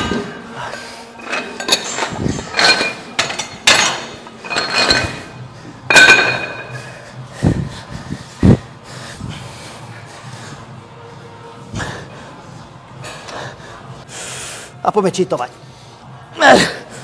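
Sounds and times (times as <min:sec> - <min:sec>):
metal weight plates clanking: 0:01.2 - 0:06.8.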